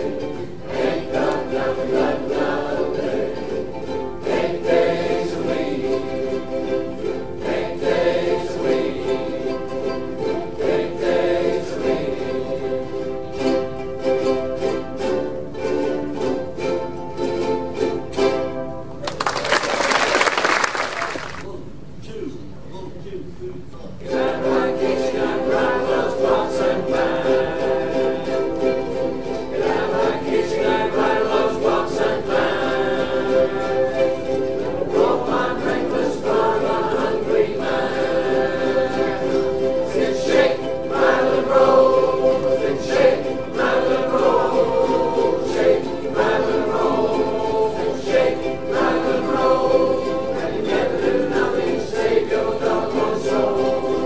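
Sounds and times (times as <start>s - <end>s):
group singing: 0.0s - 18.5s, 24.0s - 54.0s
ukulele ensemble strumming: 0.0s - 21.5s, 23.8s - 54.0s.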